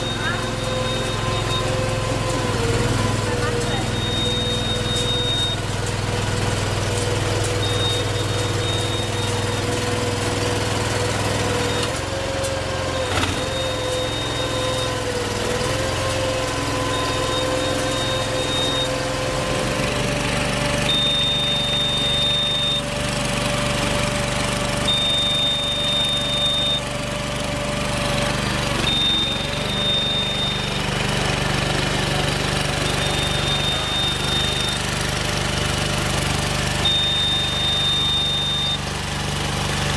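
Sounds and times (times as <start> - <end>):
high warning beep: 0.0 - 2.1, 3.7 - 5.7, 7.6 - 9.6, 13.5 - 15.0, 16.8 - 19.0, 20.8 - 22.9, 24.8 - 26.9, 28.8 - 30.7, 32.8 - 34.8, 36.8 - 38.9
crawler mechanical drone: 0.0 - 26.9, 27.8 - 39.9.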